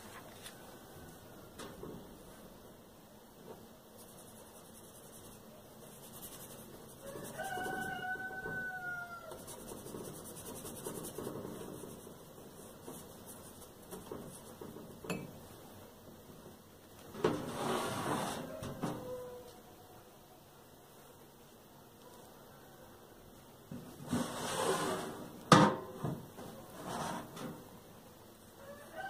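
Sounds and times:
paper rustling and rubbing: 4.0 - 8.0, 9.3 - 14.6.

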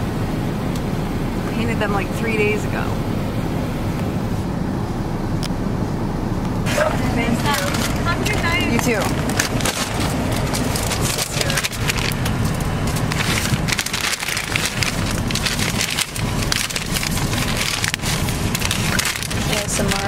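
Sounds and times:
car cabin rumble: 0.0 - 20.0
paper bag rustling: 6.7 - 20.0.

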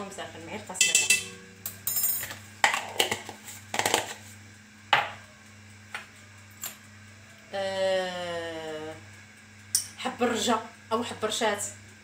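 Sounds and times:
woman speaking: 0.0 - 1.4, 7.5 - 9.0, 9.9 - 11.8
low hum: 0.0 - 3.6
spoon and dishes clinking on pot: 0.8 - 4.1.

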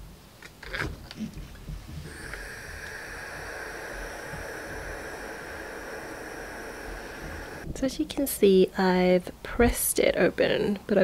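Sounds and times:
steam iron hissing: 2.0 - 7.7.

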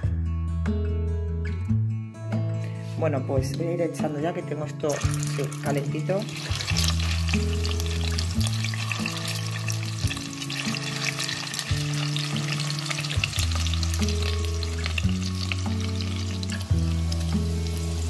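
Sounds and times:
background music of low notes: 0.0 - 18.0
meatballs sizzling in hot oil: 4.9 - 18.0.

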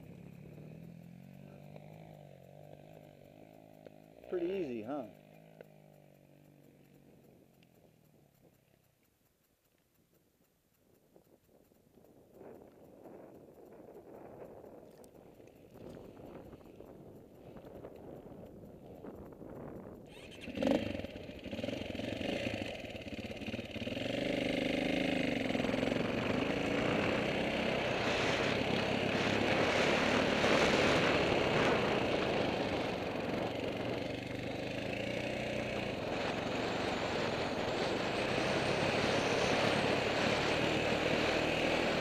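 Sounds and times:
dirt bike engine revving: 20.1 - 42.0.

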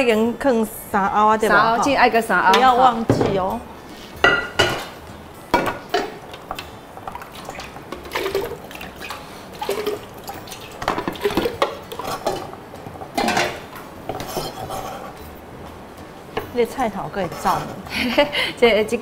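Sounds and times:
knife scraping a cutting board: 14.2 - 15.3.

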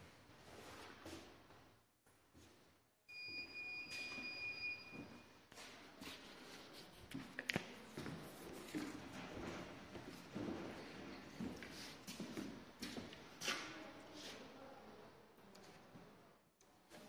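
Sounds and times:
footsteps on wooden floor: 7.1 - 13.6.

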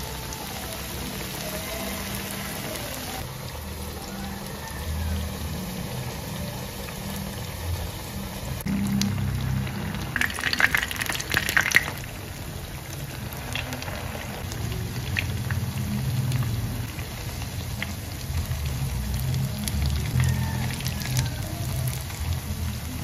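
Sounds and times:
cooking sizzle: 0.0 - 23.0.

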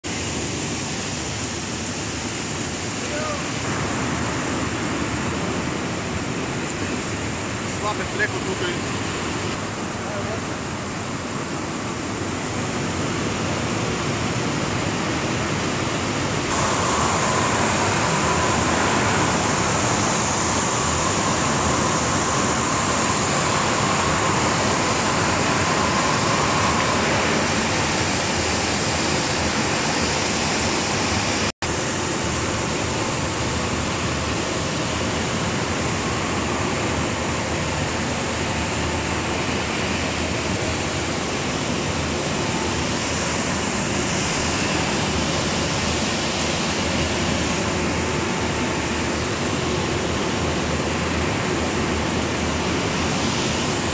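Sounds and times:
faint whine: 16.2 - 31.5
production line machinery rushing: 16.5 - 31.5.

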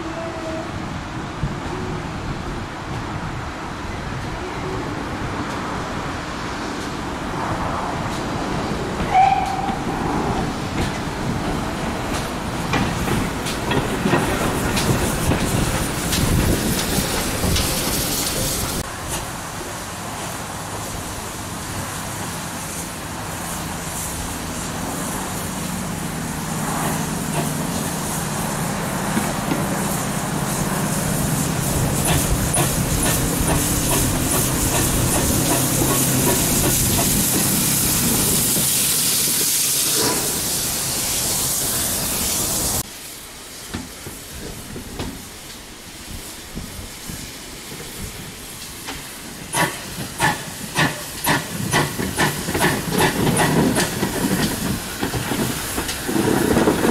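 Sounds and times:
steam locomotive running: 4.1 - 56.9
steam hissing: 7.4 - 56.9.

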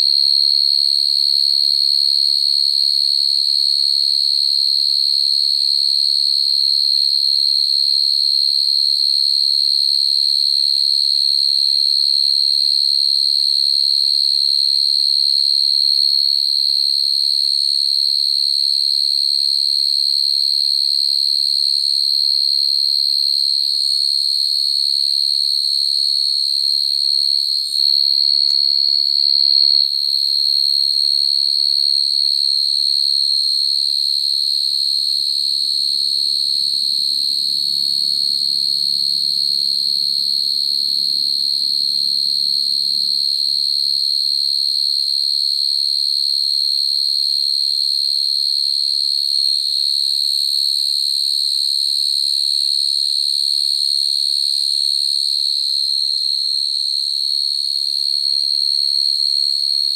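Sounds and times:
crickets trilling: 32.5 - 44.8.

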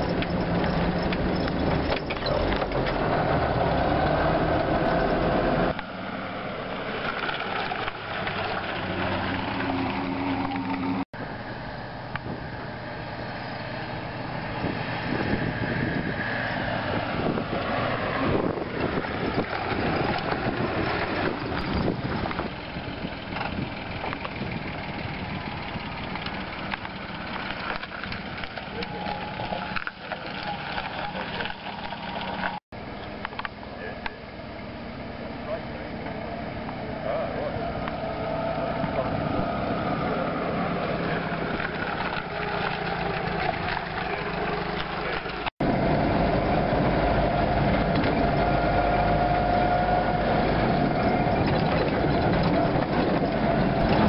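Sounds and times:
jeep engine driving past: 0.0 - 54.0
off-road vehicle engine: 0.0 - 54.0
wind noise on microphone: 12.1 - 12.7, 13.3 - 32.6, 45.6 - 54.0.

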